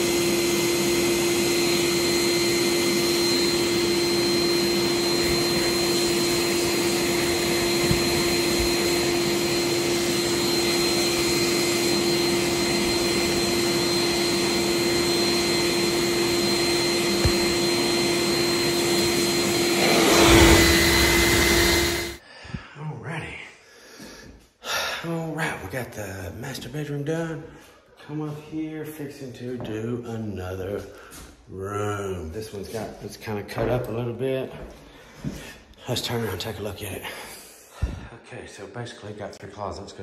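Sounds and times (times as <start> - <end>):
electric motor droning with high whine: 0.0 - 22.2.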